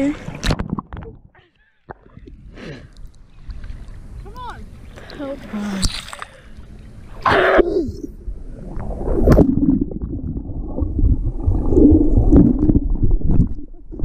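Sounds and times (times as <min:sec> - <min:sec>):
underwater rumbling and gurgling: 0:06.7 - 0:14.0
loud burst going underwater: 0:08.5 - 0:13.6.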